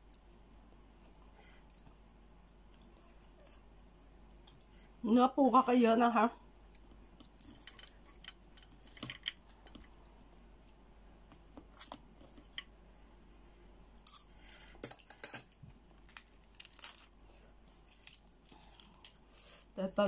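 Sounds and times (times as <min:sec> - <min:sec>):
cabbage leaf tearing: 0:16.1 - 0:17.1.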